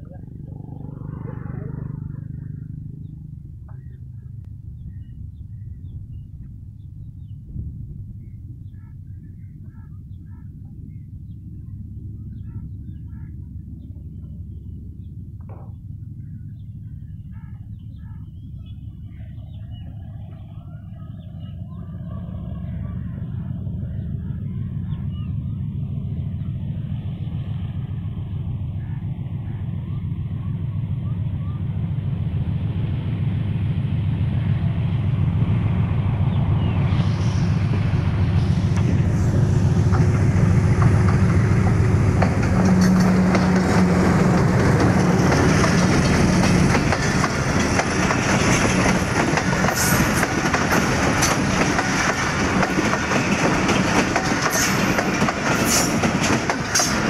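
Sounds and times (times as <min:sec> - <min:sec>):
diesel locomotive engine drone: 0:00.0 - 0:57.0
wheels on rails: 0:16.5 - 0:57.0
wheels clacking over rail joints: 0:37.6 - 0:57.0.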